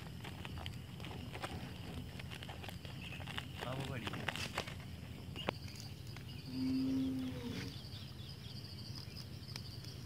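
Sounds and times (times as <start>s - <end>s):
insects chirring: 0.0s - 10.0s
cow mooing: 6.5s - 7.8s.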